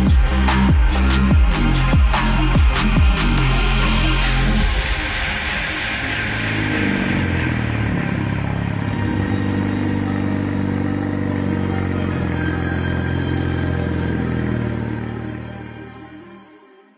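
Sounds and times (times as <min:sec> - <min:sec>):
rotary engine running: 0:05.8 - 0:15.9.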